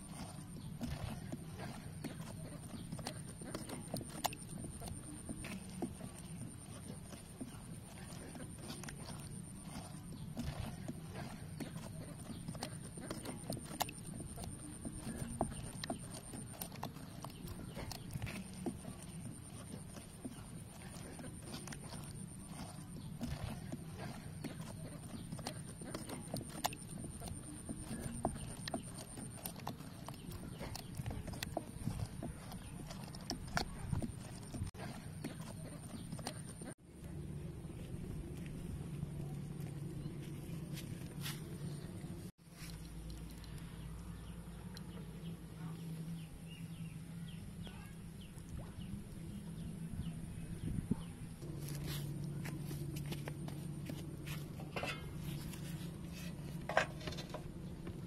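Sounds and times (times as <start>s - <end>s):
wet stirring of liquid: 0.0s - 36.8s, 51.4s - 58.0s
small birds chirping: 0.0s - 58.0s
steady low hum: 0.0s - 58.0s.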